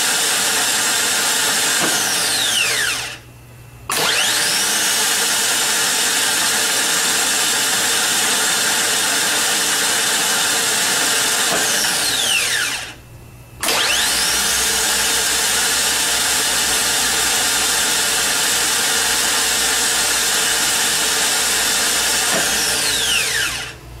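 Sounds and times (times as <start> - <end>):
electric motor whining: 13.6 - 15.4, 22.2 - 23.8.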